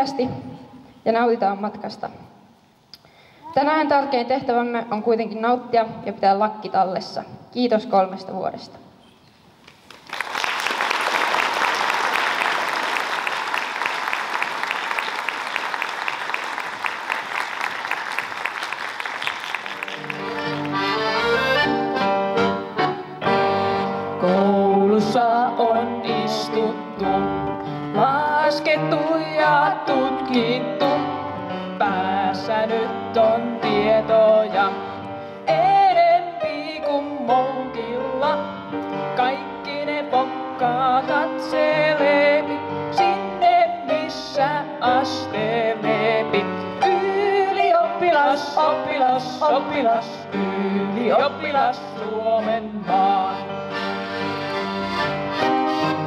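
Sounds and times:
live music with held notes: 0:09.0 - 0:56.0
audience applauding: 0:09.7 - 0:21.6.

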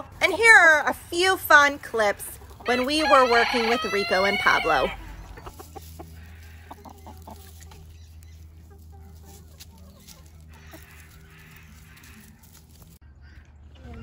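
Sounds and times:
scratches in leaf litter: 0:00.1 - 0:13.0
chickens clucking softly: 0:02.3 - 0:12.6.

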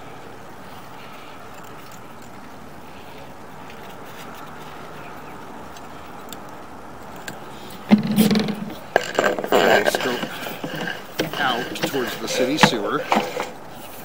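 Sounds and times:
knocks and scrapes of camera handling: 0:07.9 - 0:14.0
person speaking: 0:09.2 - 0:13.6.

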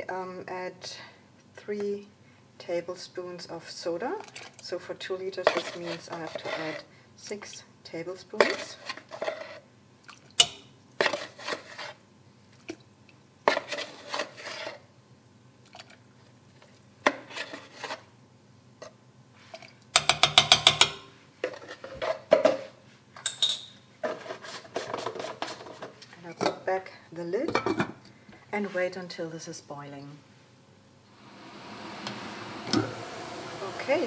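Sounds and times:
spoon scraping plastic tub: 0:05.4 - 0:06.9, 0:08.4 - 0:09.6, 0:11.0 - 0:12.0, 0:13.5 - 0:14.9, 0:17.1 - 0:18.1, 0:24.0 - 0:26.0.

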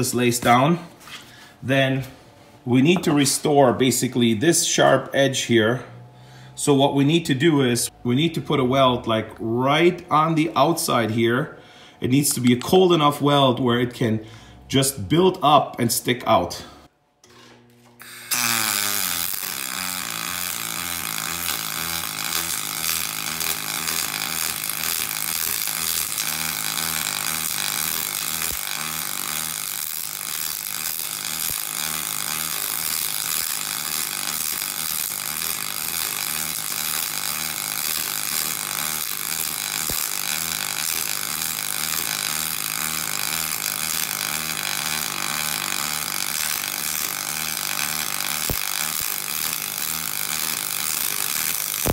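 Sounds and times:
arc welding buzz: 0:17.2 - 0:51.9.

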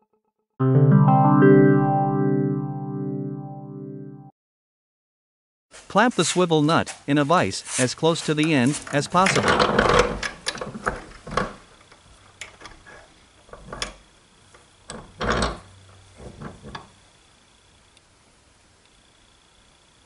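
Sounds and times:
metal clicks and clanks of vise: 0:09.2 - 0:11.5.

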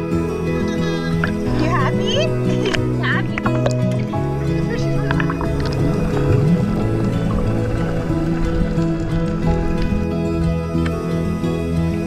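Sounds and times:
music with sustained notes: 0:00.0 - 0:12.0.

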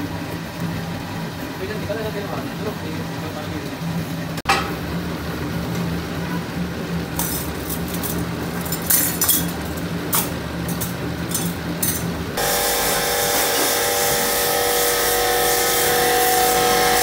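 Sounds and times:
press machine humming: 0:00.0 - 0:17.0
steel ladles clinking: 0:07.2 - 0:12.2.

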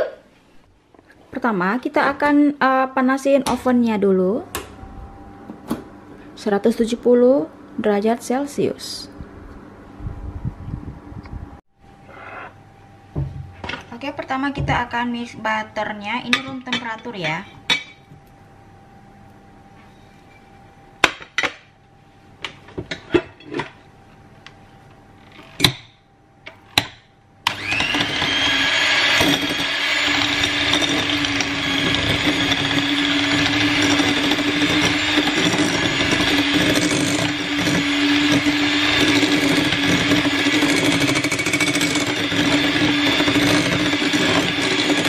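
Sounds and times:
electric hand mixer running: 0:27.5 - 0:45.0.

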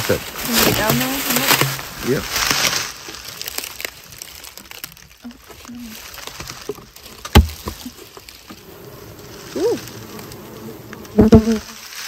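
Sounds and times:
honey bees buzzing: 0:00.0 - 0:02.1, 0:08.5 - 0:11.9
wooden boxes cracking: 0:00.0 - 0:12.0
hive tool prying wooden boxes: 0:07.2 - 0:07.8.

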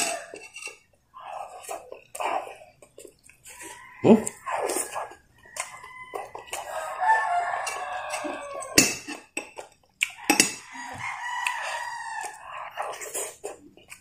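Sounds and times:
rooster crowing: 0:00.0 - 0:00.4, 0:03.5 - 0:08.8, 0:10.6 - 0:12.8
eating clicks and smacks: 0:07.6 - 0:08.4, 0:09.1 - 0:10.7.

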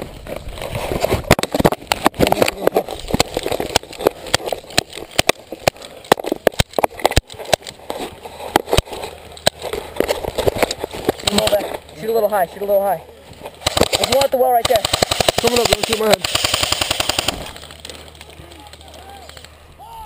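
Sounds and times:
rustling of gear and dry grass: 0:00.0 - 0:19.8
airsoft gun shots: 0:13.6 - 0:17.5.

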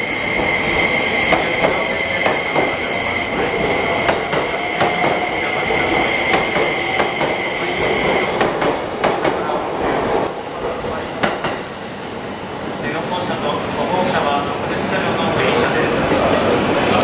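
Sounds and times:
high-pitched squeal: 0:00.0 - 0:08.4
train wheels clicking over rail joints: 0:00.3 - 0:09.5.

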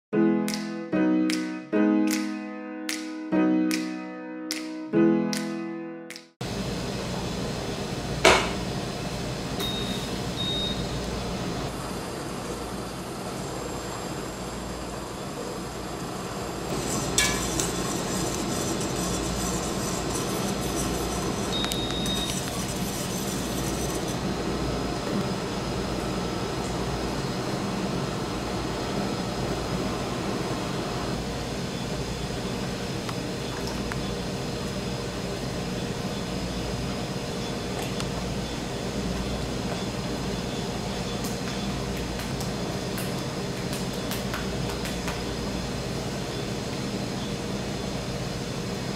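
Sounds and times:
fan whirring: 0:06.4 - 0:48.9
steady low hum: 0:06.4 - 0:48.9
short high beeps: 0:09.6 - 0:10.8, 0:21.5 - 0:22.5.

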